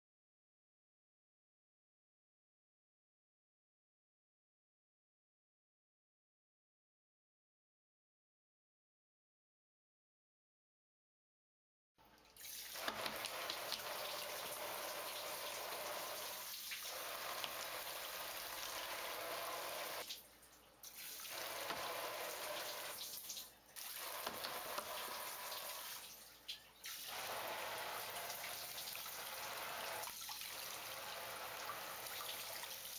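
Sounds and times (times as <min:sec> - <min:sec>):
shower water splashing in bathtub: 0:12.3 - 0:32.9.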